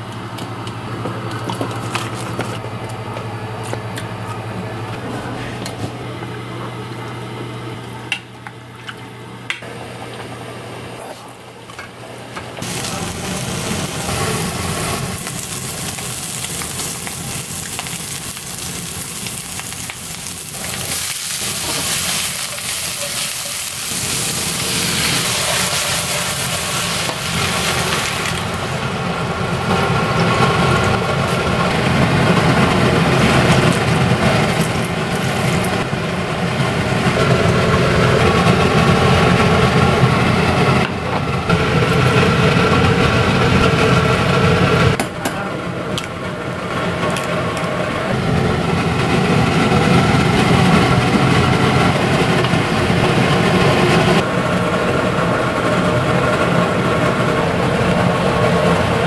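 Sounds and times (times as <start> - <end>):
food sizzling in a pan: 12.6 - 28.7.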